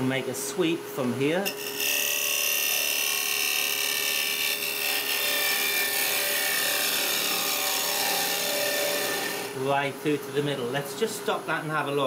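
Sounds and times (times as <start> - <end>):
lathe cutter hissing on wood: 4.2 - 9.5.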